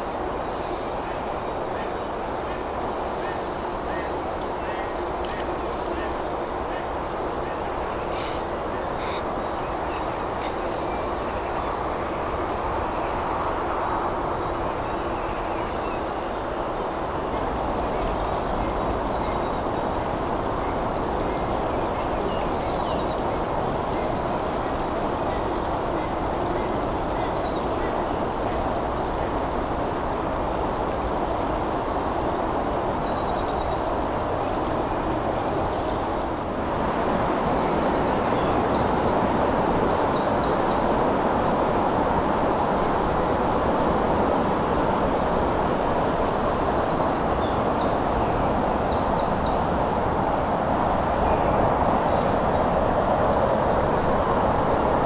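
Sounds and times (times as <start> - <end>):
small birds chirping: 0.0 - 36.6
steady rushing noise: 0.0 - 55.0.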